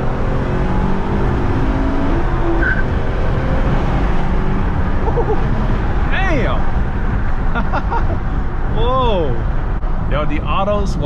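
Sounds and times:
car engine accelerating hard: 0.0 - 8.7.

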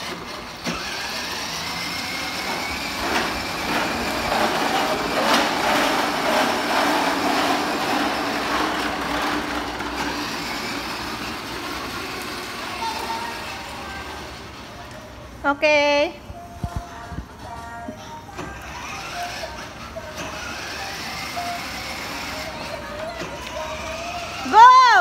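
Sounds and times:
plastic wheels rattling on tile: 0.0 - 14.4, 18.5 - 25.0
small electric motor whirring: 18.5 - 24.5.

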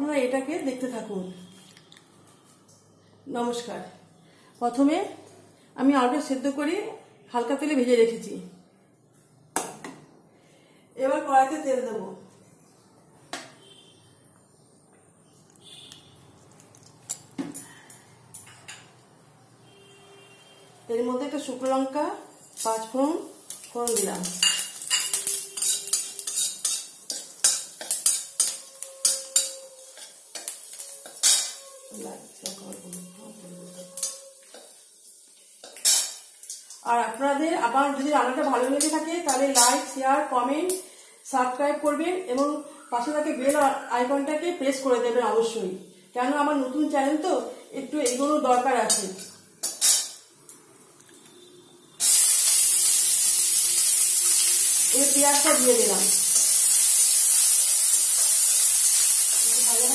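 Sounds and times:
onions sizzling in hot oil: 20.9 - 50.3, 52.0 - 59.9
metal spatula scraping a pan: 23.5 - 32.4, 33.0 - 34.9, 35.6 - 36.8, 48.0 - 50.2.

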